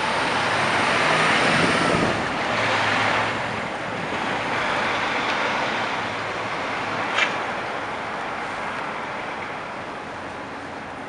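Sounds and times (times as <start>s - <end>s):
city traffic rush: 0.0s - 11.0s
truck diesel engine passing: 0.0s - 11.0s.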